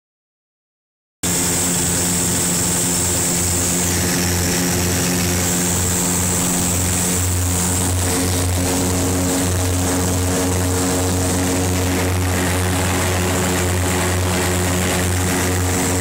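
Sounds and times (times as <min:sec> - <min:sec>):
propeller engines droning: 0:01.2 - 0:16.0
rush of air: 0:01.2 - 0:16.0.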